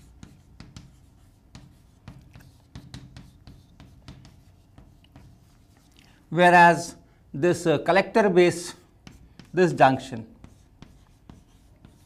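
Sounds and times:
chalk writing on blackboard: 0.0s - 6.0s, 8.4s - 12.0s.

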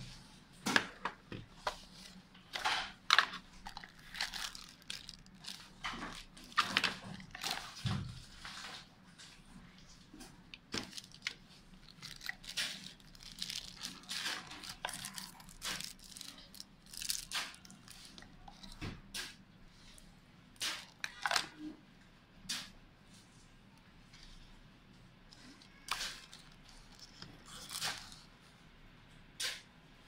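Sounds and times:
plastic and cardboard packaging crinkling: 0.8s - 18.8s, 25.3s - 28.3s.

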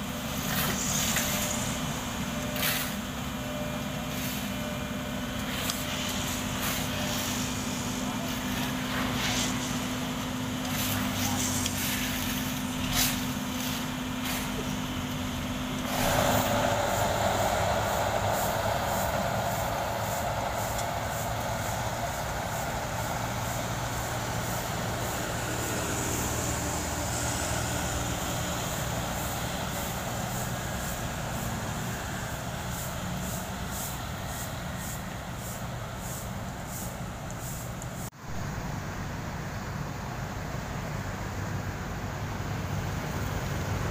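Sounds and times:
paver engine running: 0.0s - 43.9s
road roller diesel engine rumble: 0.0s - 43.9s.

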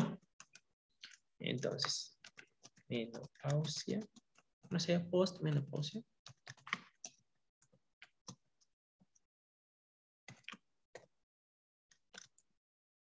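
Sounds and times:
computer keyboard keystrokes: 6.3s - 7.2s.

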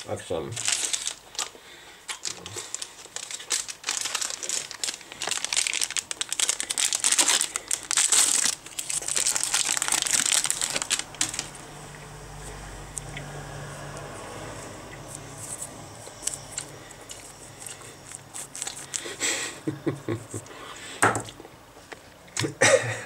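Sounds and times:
plastic wrapper crinkling: 0.0s - 11.8s, 15.0s - 19.2s.

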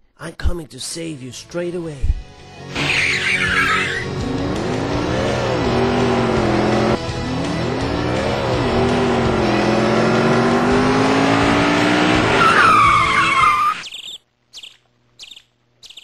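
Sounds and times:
high tyre screech: 2.7s - 13.8s
vehicle engine revving: 2.7s - 13.8s.

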